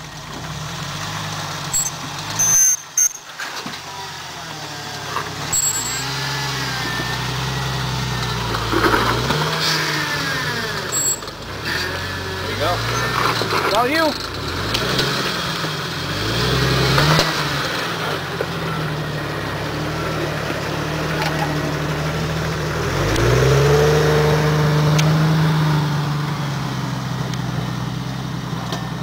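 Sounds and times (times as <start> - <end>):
car engine revving under load: 0.0 - 29.0.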